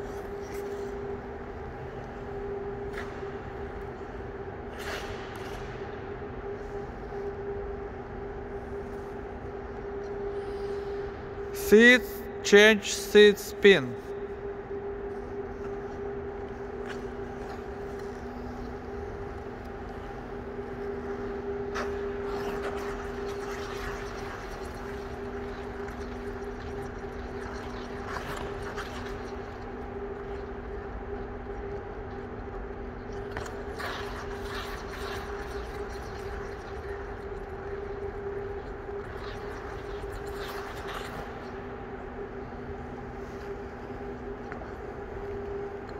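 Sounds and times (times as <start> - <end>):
ice rink machinery humming: 0.0 - 45.9
skate blades scraping ice: 33.3 - 36.8.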